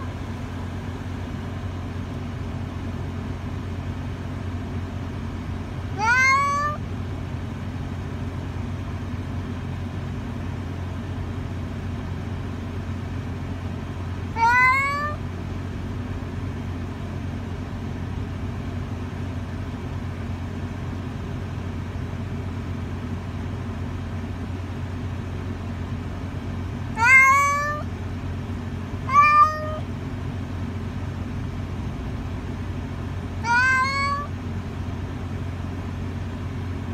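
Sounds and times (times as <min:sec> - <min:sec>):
cat meowing: 0:05.9 - 0:06.8, 0:14.3 - 0:15.2, 0:26.9 - 0:27.9, 0:29.0 - 0:29.9, 0:33.4 - 0:34.4.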